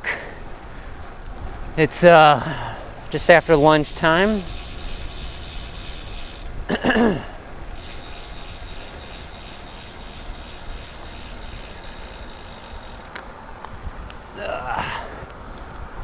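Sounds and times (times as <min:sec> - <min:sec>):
bicycle freehub ticking: 0:03.1 - 0:06.7, 0:07.7 - 0:13.3.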